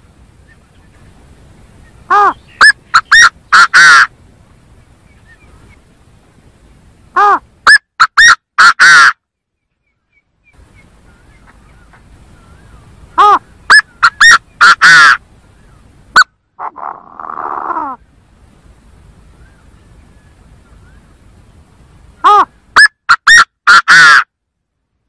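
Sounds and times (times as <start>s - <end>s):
francolin calling: 0.3s - 4.2s, 4.8s - 5.9s, 7.1s - 18.2s.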